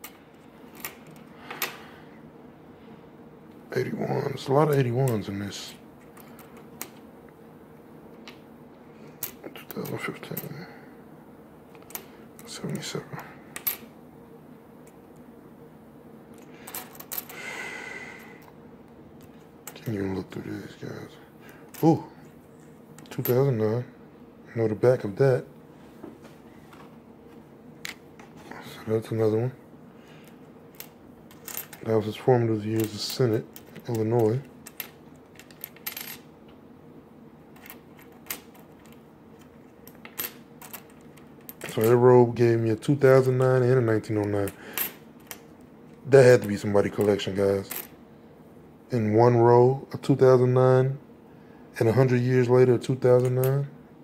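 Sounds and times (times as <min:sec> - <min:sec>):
coins clicking on wooden table: 0:13.6 - 0:13.9, 0:16.4 - 0:17.3, 0:30.7 - 0:31.9, 0:32.8 - 0:36.2, 0:37.6 - 0:42.0, 0:46.5 - 0:47.9.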